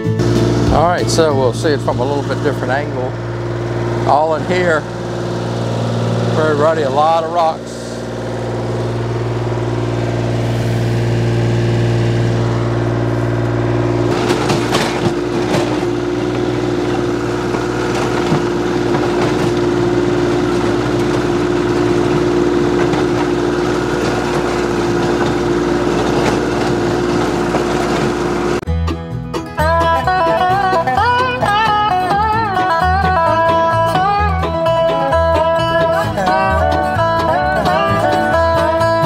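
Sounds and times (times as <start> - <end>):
tractor diesel engine running: 0.0 - 39.0
rotary tiller churning soil: 0.2 - 28.6.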